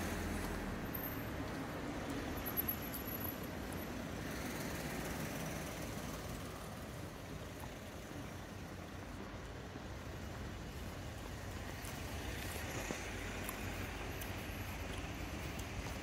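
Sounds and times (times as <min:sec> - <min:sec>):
passing cars: 0:00.0 - 0:16.0.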